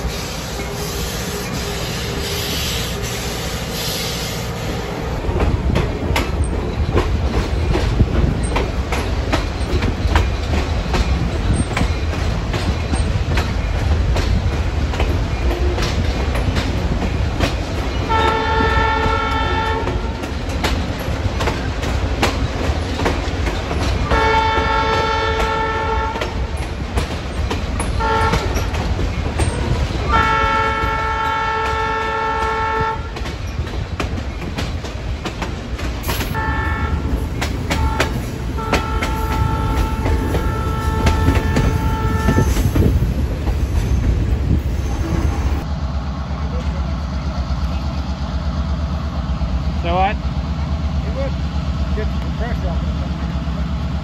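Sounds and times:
train wheels clickety-clack: 5.1s - 45.7s, 46.3s - 54.0s
train horn blasts: 18.0s - 20.3s, 24.0s - 26.5s, 28.0s - 28.7s, 30.0s - 33.3s, 36.3s - 42.8s.

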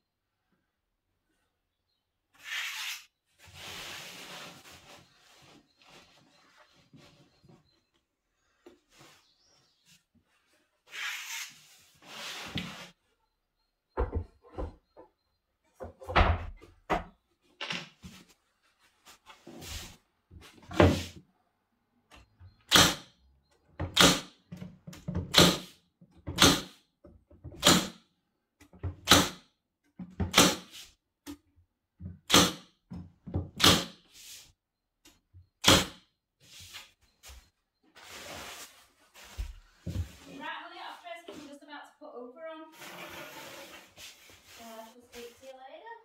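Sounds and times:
stapler firing staples: 22.7s - 23.1s, 23.9s - 24.3s, 26.4s - 26.8s, 29.0s - 29.4s, 32.3s - 32.6s, 33.6s - 34.0s, 35.6s - 36.0s.

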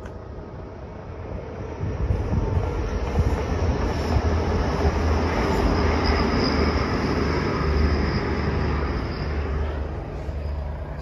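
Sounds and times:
diesel train rumbling past: 0.0s - 11.0s
wind on microphone: 1.3s - 5.8s
faint high whine: 4.1s - 11.0s.

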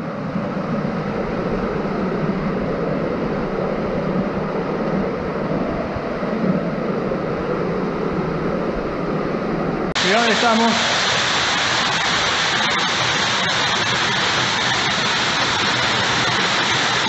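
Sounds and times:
waterfall splashing into pool: 10.0s - 17.0s.

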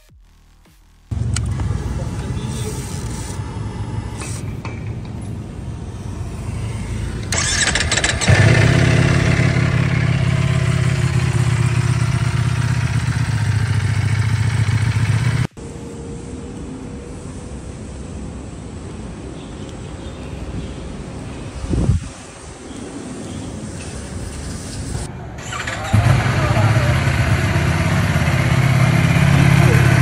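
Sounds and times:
steady background noise: 0.0s - 8.5s, 15.4s - 29.2s
motorcycle engine starting and idling: 6.6s - 15.6s, 25.4s - 30.0s.

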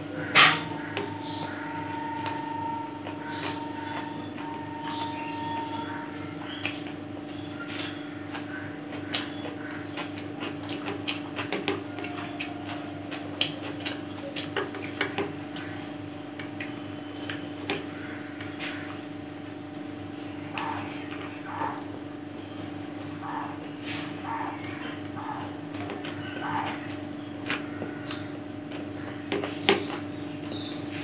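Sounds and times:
steady low hum: 0.0s - 31.0s
chewing: 0.8s - 19.0s, 19.7s - 31.0s
fingers mixing rice: 0.8s - 19.0s.

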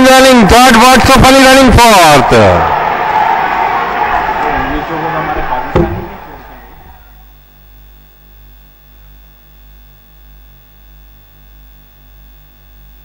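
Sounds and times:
low electrical hum: 3.7s - 13.0s.

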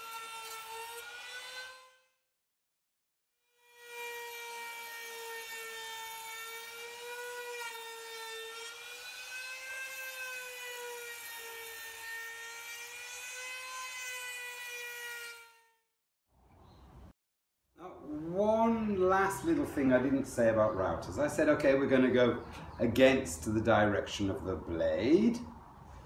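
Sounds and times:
router cutting wood: 0.0s - 2.0s, 3.6s - 15.6s.

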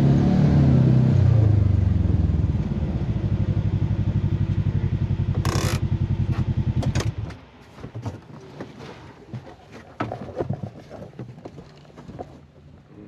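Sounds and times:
engine idling: 1.9s - 7.2s.

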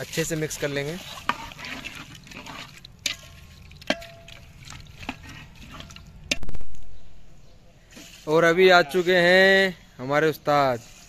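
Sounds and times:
liquid sloshing in pot: 0.0s - 6.6s.

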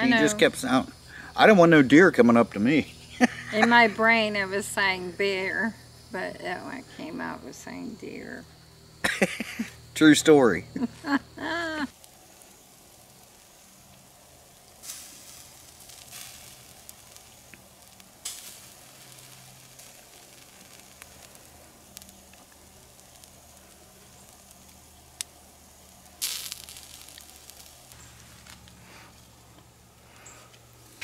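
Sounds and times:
steaks sizzling: 0.0s - 31.0s.

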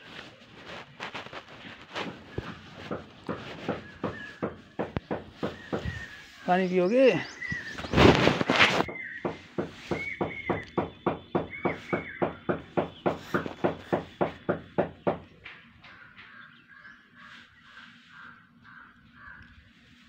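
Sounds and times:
birds chirping: 0.0s - 20.0s
sharp knocks: 2.0s - 6.1s, 8.8s - 16.3s.

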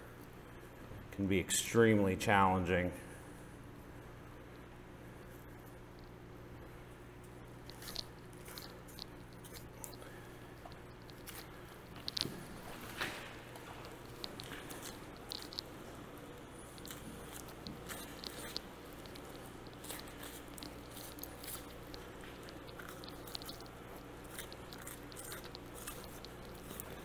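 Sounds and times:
steady low hum: 0.0s - 27.0s
crisp ticks: 7.2s - 27.0s
wet squishes: 7.6s - 27.0s.

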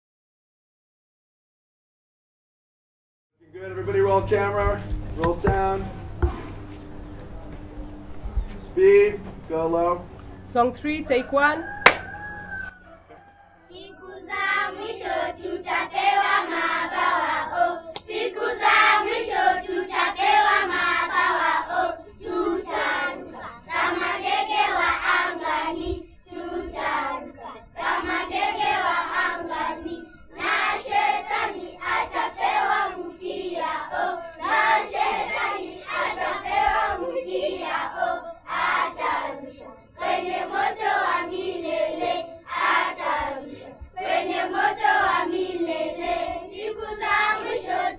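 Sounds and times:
hand claps: 11.8s - 12.1s, 17.9s - 18.1s
children singing in chorus: 13.7s - 47.9s.

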